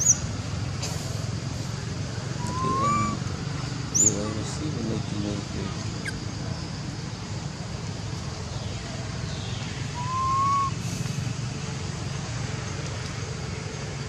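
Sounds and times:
short whistle-like call: 2.4s - 3.2s, 10.0s - 10.8s.

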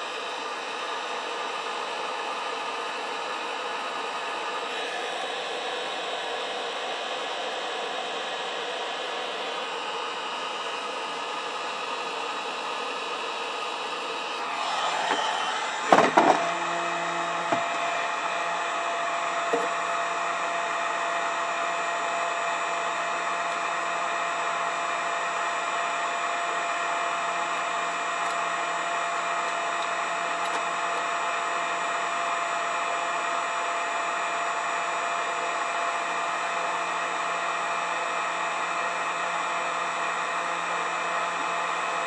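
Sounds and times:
heat gun blowing whir: 8.2s - 24.2s.

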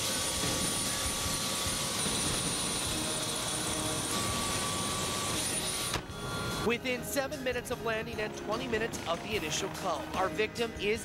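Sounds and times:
helicopter engine and rotor: 0.0s - 6.7s.

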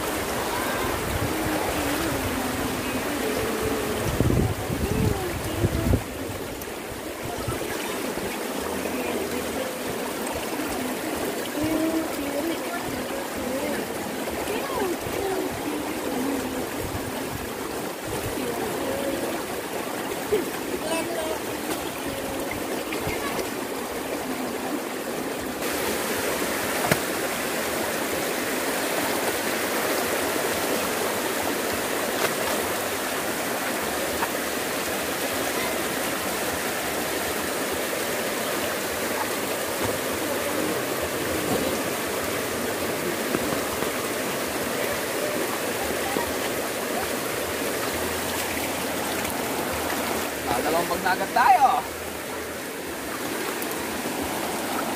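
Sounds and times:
flowing creek water: 0.0s - 54.9s.

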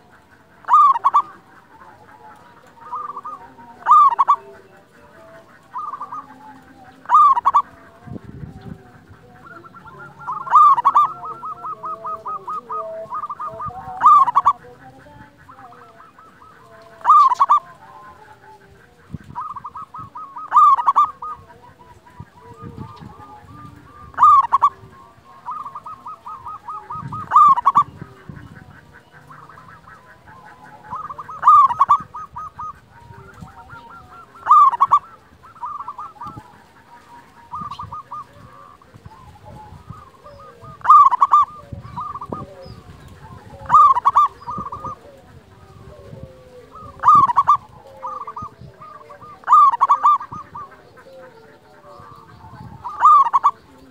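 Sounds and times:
dove cooing: 0.0s - 53.9s.

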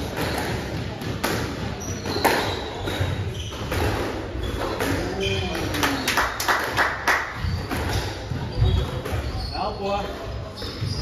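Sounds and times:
squash ball struck by racket: 0.0s - 5.2s
shoes squeaking on wooden floor: 0.0s - 6.3s, 7.3s - 11.0s.

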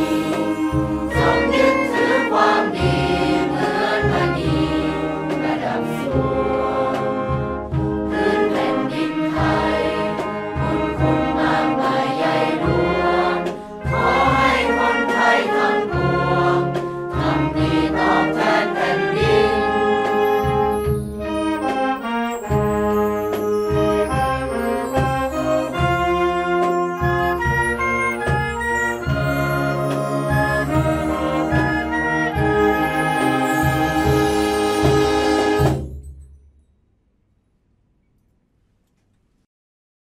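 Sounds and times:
group singing: 0.0s - 20.6s
brass and wind band: 0.0s - 36.0s.

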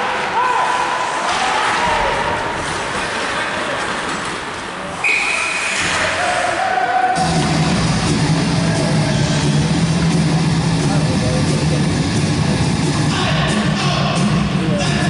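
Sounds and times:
hockey play on ice: 0.0s - 10.3s
crowd chatter in a large hall: 0.0s - 15.0s
whistle blast: 5.0s - 6.0s.

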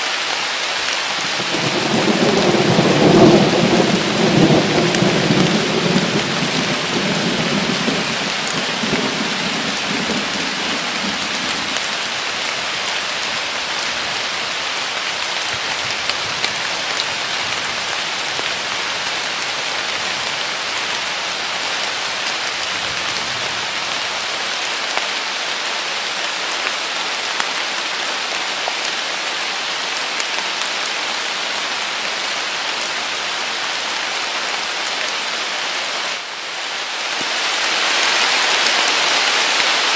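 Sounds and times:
heavy rain pouring: 0.0s - 39.9s
low rumble of thunder: 1.5s - 11.8s.

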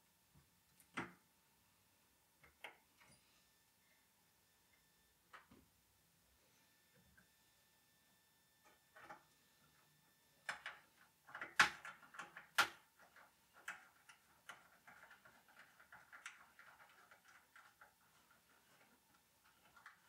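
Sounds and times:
light rustling of cables: 10.5s - 20.0s.

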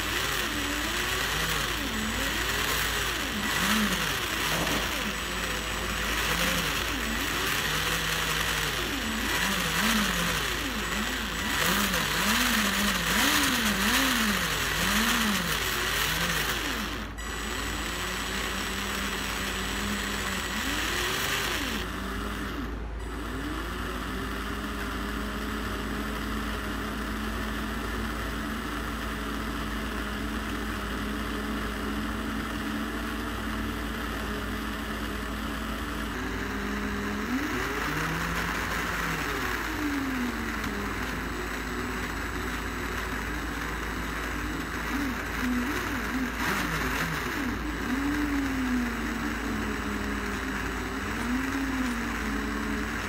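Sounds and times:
small electric motor whirring: 0.0s - 53.0s.

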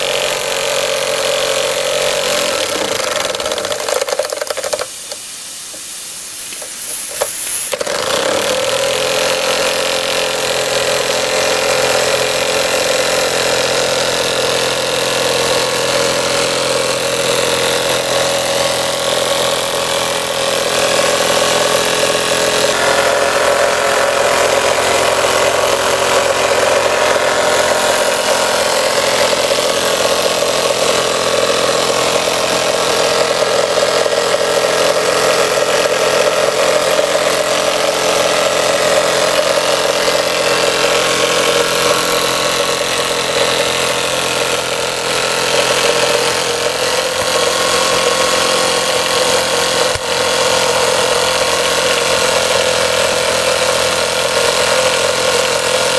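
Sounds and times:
steam engine running: 0.0s - 5.8s, 6.5s - 55.9s
continuous steam hiss: 4.4s - 7.8s
steady hum: 19.2s - 42.8s.

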